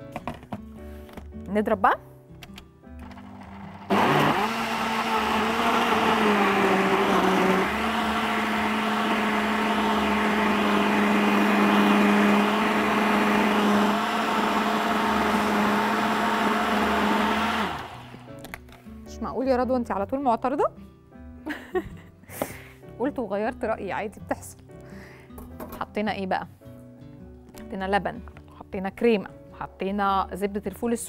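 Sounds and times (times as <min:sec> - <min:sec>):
blender motor running: 0:03.1 - 0:18.2.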